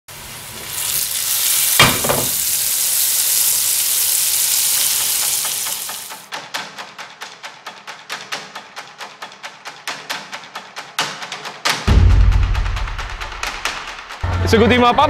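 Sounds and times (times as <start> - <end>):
meat sizzling on a grill: 0.1 - 6.3.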